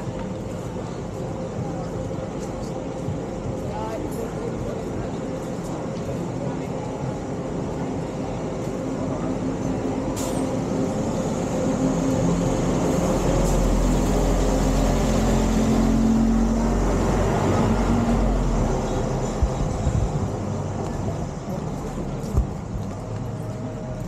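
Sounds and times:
bus driving past: 9.1 - 24.0.

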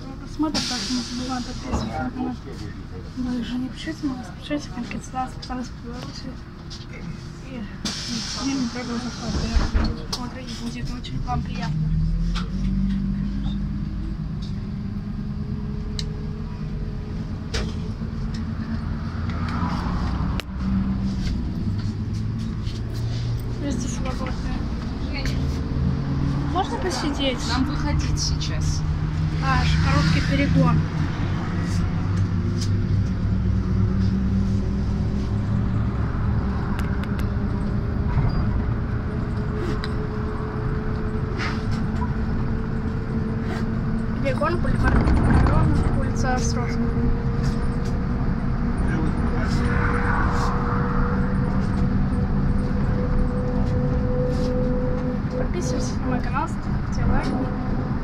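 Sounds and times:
bus engine drone: 0.0 - 58.0
road noise: 0.0 - 58.0
sharp knocks and rattles: 44.6 - 46.1.

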